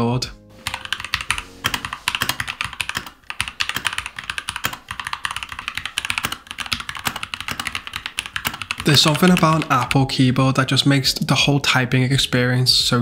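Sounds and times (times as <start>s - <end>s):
fast typing on keyboard: 0.6s - 10.1s.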